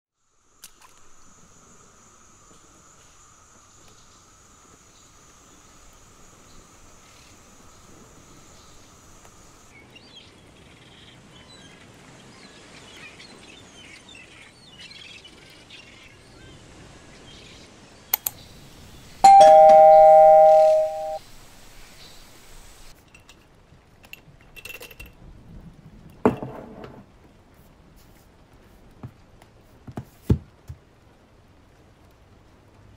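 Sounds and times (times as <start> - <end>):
sharp clicks: 18.2 - 18.4
faint chirping: 18.2 - 22.9
two-note chime: 19.2 - 21.2.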